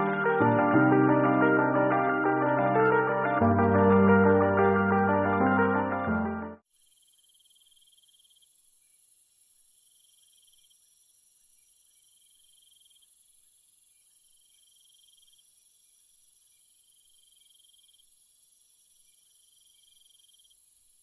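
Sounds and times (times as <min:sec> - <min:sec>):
insects high-pitched drone: 0:06.8 - 0:20.9.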